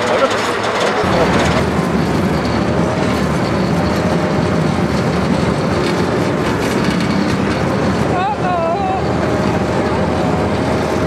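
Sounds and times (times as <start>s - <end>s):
tank engine rumbling: 0.0s - 11.0s
faint whine: 1.0s - 4.0s.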